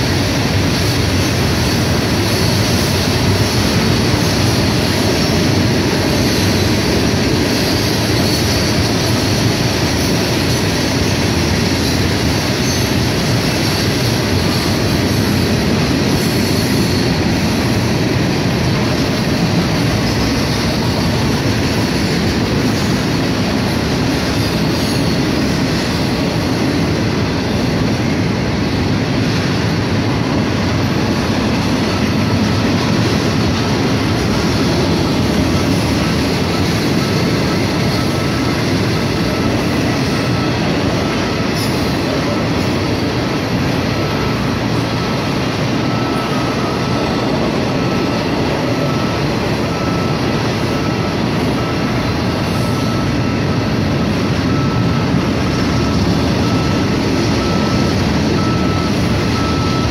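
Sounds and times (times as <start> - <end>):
steel wheels rumbling on rail: 0.0 - 59.9
faint wheel squeal: 16.1 - 17.4.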